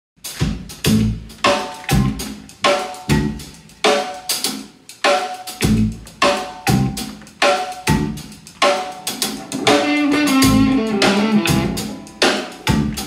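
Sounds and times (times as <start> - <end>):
drum kit groove: 0.2 - 13.0
electric guitar chord stabs: 9.4 - 13.0.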